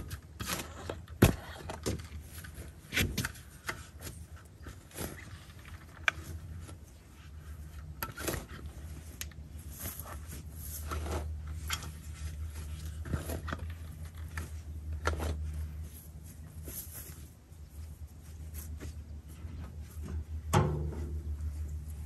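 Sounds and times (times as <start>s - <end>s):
garden tool scraping dry grass: 6.2s - 19.3s.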